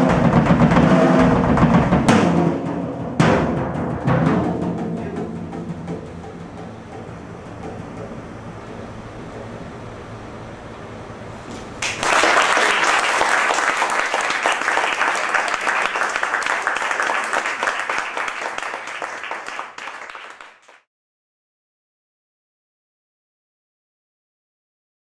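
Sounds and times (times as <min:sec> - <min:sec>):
audience applause: 0:11.8 - 0:20.9.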